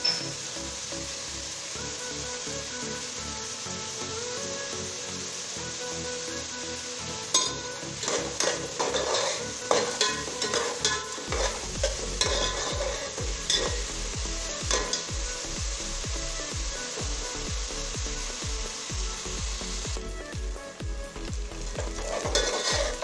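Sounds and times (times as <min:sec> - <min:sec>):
onions sizzling: 0:00.0 - 0:23.0
ladle clinking and scraping pot: 0:07.4 - 0:13.9, 0:14.7 - 0:15.1, 0:21.8 - 0:23.0.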